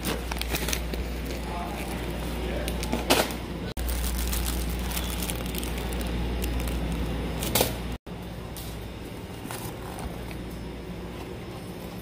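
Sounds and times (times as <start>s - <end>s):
plastic packaging crinkling: 0.0s - 2.9s, 3.8s - 7.7s.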